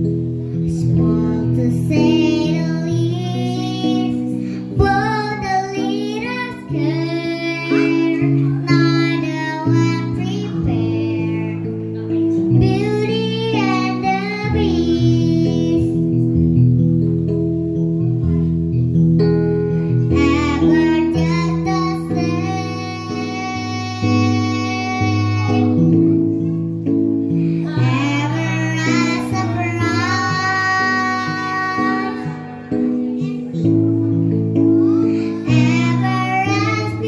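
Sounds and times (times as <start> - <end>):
guitar accompaniment: 0.0 - 37.0
child singing: 0.6 - 16.4, 20.1 - 26.6, 27.6 - 33.8, 34.6 - 37.0.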